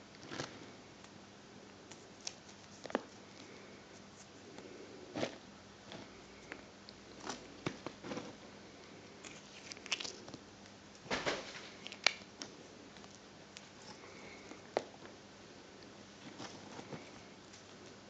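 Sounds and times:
hands handling small objects: 5.2s - 15.2s.

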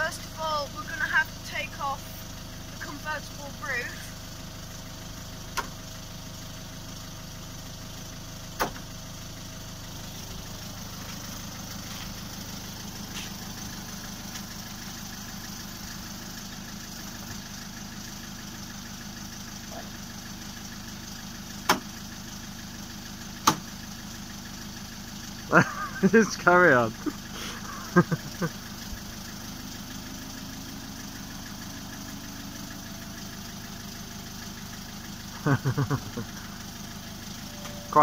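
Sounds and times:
car engine idling: 0.0s - 38.0s
roof mechanism clunks: 8.6s - 8.8s, 23.4s - 23.7s
folding roof motor whine: 27.9s - 34.9s.

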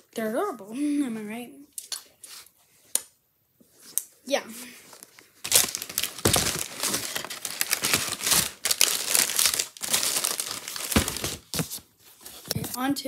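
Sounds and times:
plastic bag rustling: 5.0s - 12.5s.

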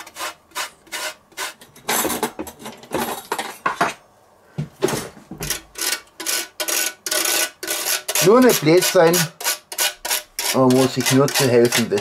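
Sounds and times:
metal grater and fork clattering: 5.4s - 12.0s.

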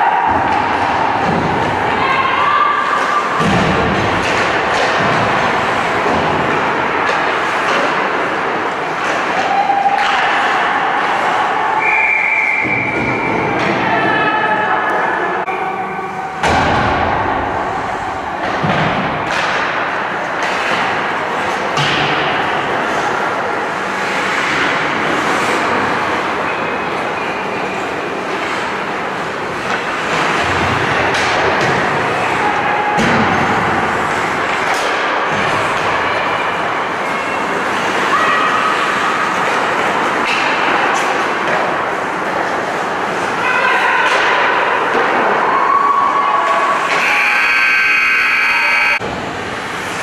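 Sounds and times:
arena noise: 0.0s - 50.0s
knocks against rink boards: 0.2s - 1.8s, 3.0s - 10.7s, 18.4s - 23.0s, 29.5s - 36.3s, 39.3s - 42.8s
skates scraping on ice: 2.8s - 11.6s, 17.4s - 45.4s, 49.0s - 50.0s
hockey stick clacks: 3.0s - 11.3s, 18.4s - 23.2s, 33.0s - 38.1s, 38.8s - 43.3s.

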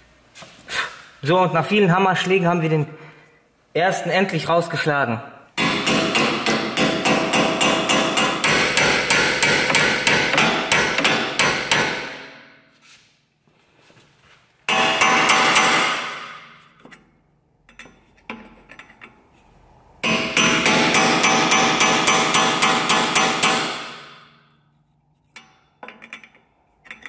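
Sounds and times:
hammer striking steel punch: 5.6s - 12.6s, 14.7s - 16.6s, 20.0s - 24.3s.

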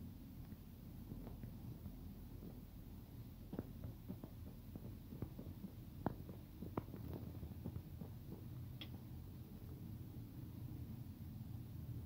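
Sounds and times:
light clicks and ticks: 3.5s - 9.1s.

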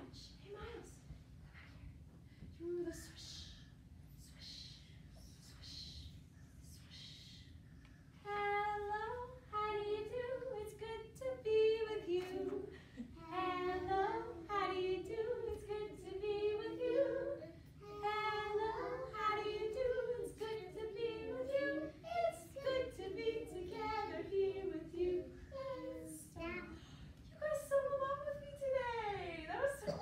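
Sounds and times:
woman and children singing: 8.2s - 26.4s, 27.4s - 30.0s.

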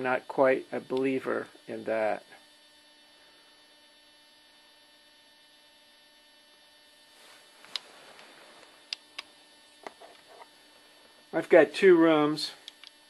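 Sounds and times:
faint mains hum: 0.0s - 13.0s
soft rustling: 7.1s - 8.9s
sharp click: 12.6s - 13.0s.

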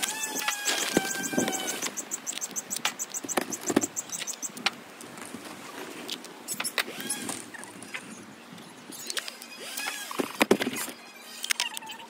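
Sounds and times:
high bird trill: 0.0s - 4.6s
birds chirping and chattering: 0.0s - 4.7s
sharp clicks and knocks: 0.0s - 4.8s.

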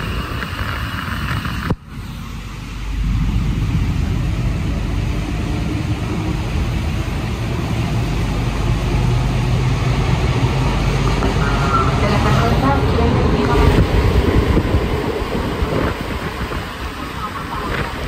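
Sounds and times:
metro train rumble: 0.0s - 18.0s.

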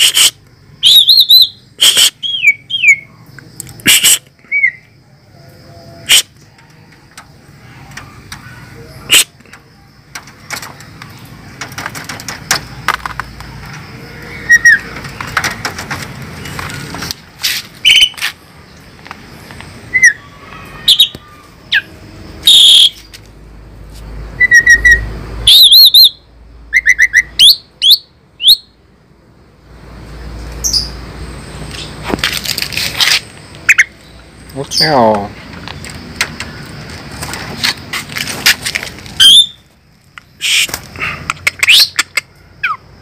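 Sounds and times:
starling whistles and warbles: 0.0s - 3.2s, 3.8s - 7.0s, 7.6s - 11.2s, 14.1s - 15.6s, 17.8s - 18.2s, 19.9s - 23.1s, 24.4s - 28.7s, 39.2s - 39.7s, 40.4s - 40.8s.

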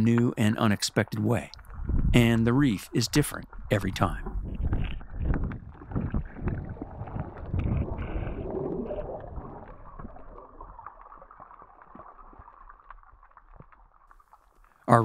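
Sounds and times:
muffled underwater water sloshing: 1.4s - 14.8s.

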